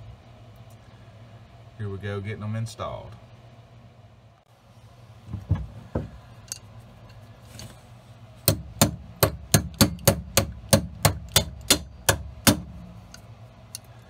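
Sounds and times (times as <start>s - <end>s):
hammer striking metal bolts: 8.4s - 13.2s.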